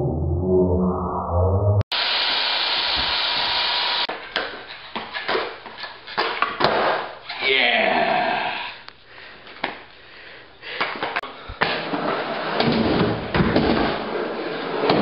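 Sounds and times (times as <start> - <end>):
skateboard rolling on concrete: 11.6 - 15.0.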